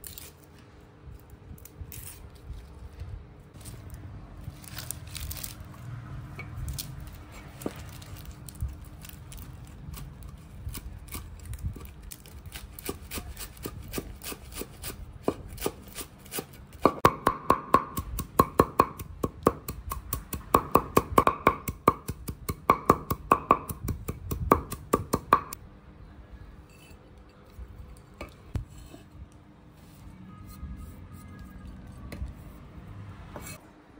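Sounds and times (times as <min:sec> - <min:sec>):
cleaver chopping greens on wood: 0:12.5 - 0:25.6.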